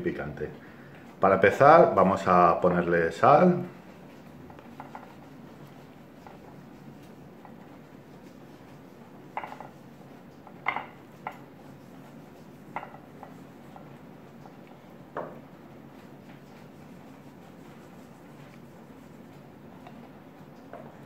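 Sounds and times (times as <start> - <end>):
chicken knocking on ceramic platter: 9.3 - 9.8.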